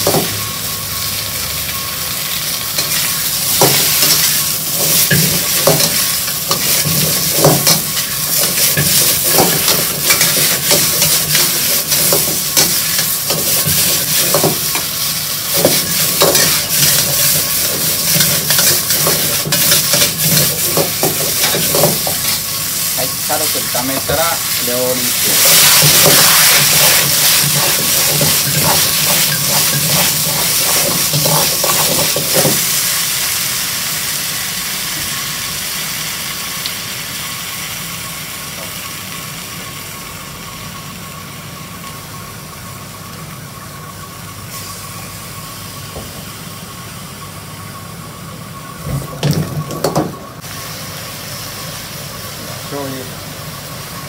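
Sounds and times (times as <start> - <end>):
gas burner roaring: 0.0 - 54.0
wine sizzling in a hot wok: 0.0 - 54.0
ladle knocking and scraping wok: 2.8 - 22.4, 25.2 - 32.8.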